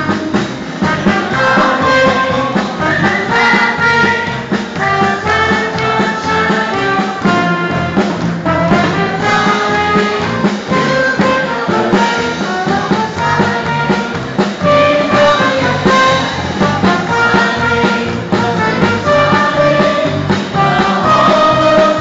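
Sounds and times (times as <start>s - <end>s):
loud brass music: 0.0s - 22.0s.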